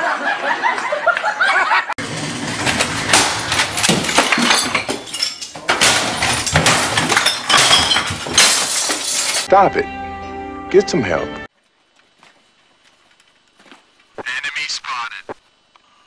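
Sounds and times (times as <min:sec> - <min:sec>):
objects crashing and clattering: 0:02.0 - 0:09.5
glass clinking and breaking: 0:02.4 - 0:09.5.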